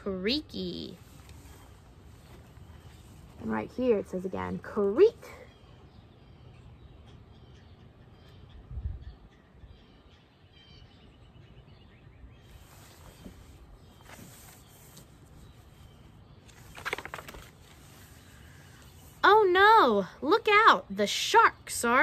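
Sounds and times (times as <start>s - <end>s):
book pages rustling: 1.0s - 3.4s, 12.6s - 19.0s
faint bird chirps: 1.0s - 19.6s.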